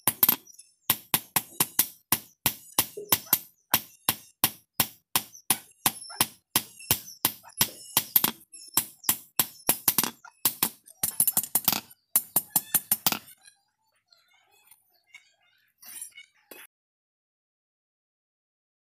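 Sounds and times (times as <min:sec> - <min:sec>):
hammer striking hot steel: 0:00.0 - 0:13.3.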